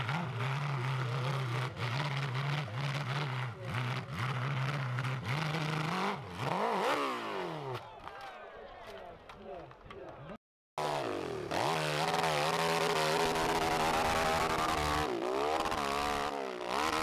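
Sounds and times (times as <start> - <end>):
motorbike engine revving hard: 0.0 - 7.8, 10.8 - 17.0.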